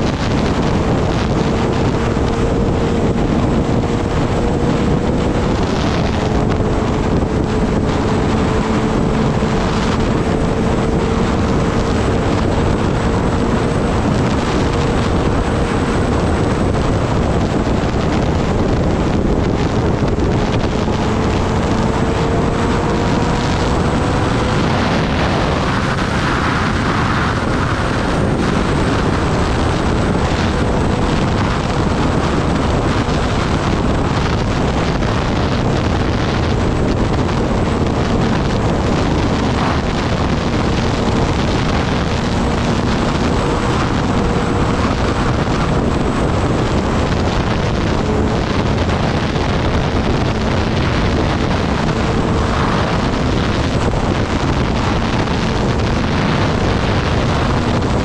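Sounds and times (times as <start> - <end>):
motorcycle engine: 0.0 - 58.0
wind rushing over microphone: 0.0 - 58.0.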